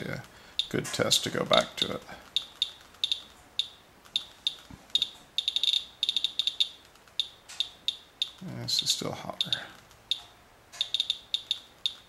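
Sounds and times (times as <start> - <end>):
geiger counter chirping: 1.6 - 8.4, 9.3 - 12.0.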